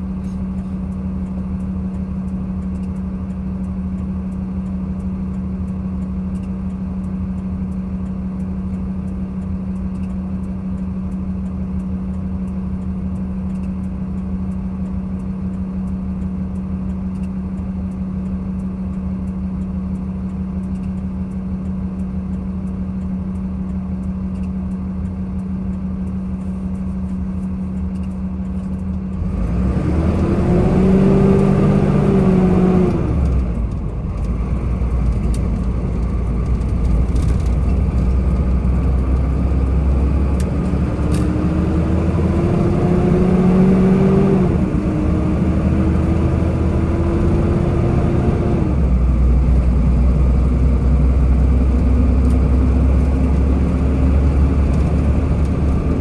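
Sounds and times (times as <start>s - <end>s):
vehicle engine idling: 0.0s - 29.8s, 32.3s - 42.1s.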